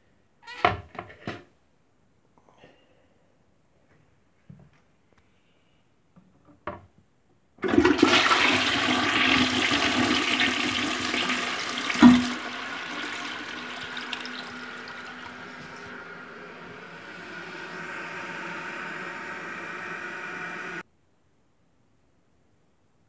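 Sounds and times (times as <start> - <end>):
rush of toilet flush water: 7.6 - 20.8
toilet refilling with water: 7.6 - 20.8
brief thump: 12.0 - 12.4.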